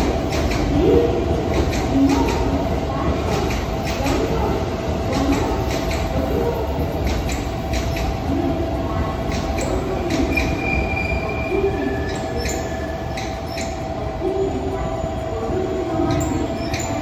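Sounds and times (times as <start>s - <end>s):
clicks of train wheels: 0.0s - 8.3s, 9.0s - 13.9s, 15.7s - 17.0s
train rumbling on rails: 0.0s - 17.0s
train wheel squeal: 9.6s - 13.8s, 15.9s - 17.0s.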